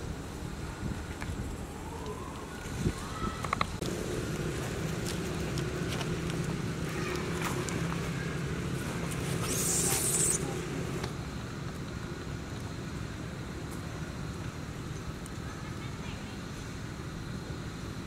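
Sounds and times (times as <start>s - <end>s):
low motor hum: 3.6s - 14.8s
light ticks and rustles: 11.0s - 15.5s.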